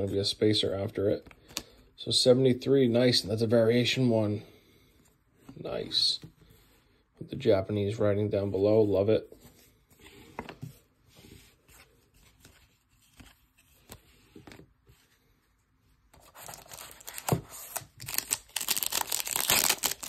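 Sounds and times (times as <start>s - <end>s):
wrapper tearing and crinkling: 16.3s - 20.0s.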